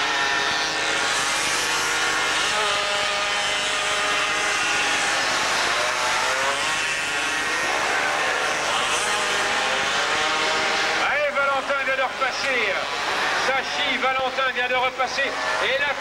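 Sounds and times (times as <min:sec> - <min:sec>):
two-stroke moped engines racing: 0:00.0 - 0:16.0.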